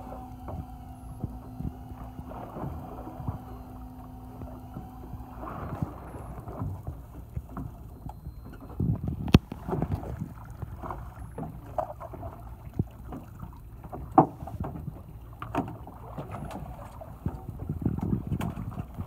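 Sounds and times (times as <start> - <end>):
boat engine idling: 0.0 - 19.0.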